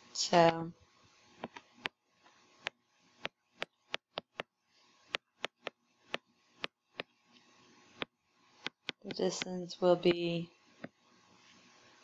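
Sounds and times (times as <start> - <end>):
stylus tapping on writing surface: 2.6 - 4.5, 5.1 - 7.2, 8.0 - 9.5.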